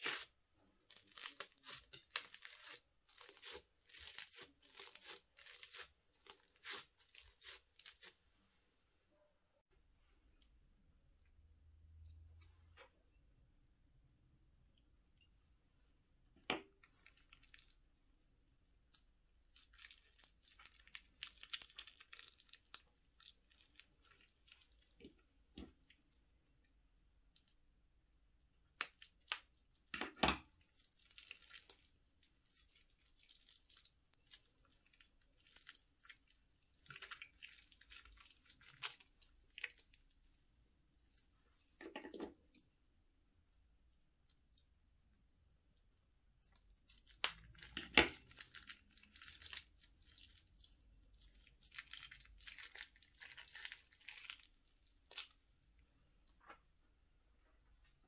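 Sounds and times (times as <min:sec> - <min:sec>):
plastic crinkling: 0:00.0 - 0:08.2
slime squishing: 0:00.0 - 0:08.2, 0:16.7 - 0:26.3, 0:28.3 - 0:42.7, 0:45.7 - 0:56.7.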